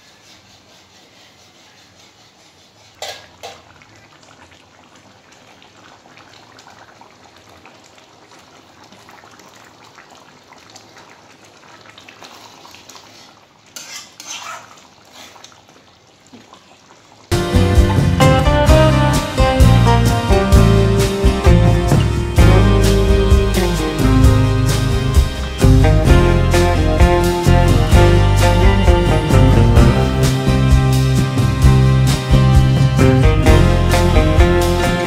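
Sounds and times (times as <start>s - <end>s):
metal spoon stirring in pan: 13.1s - 14.6s
spoon scraping pan: 13.7s - 14.6s.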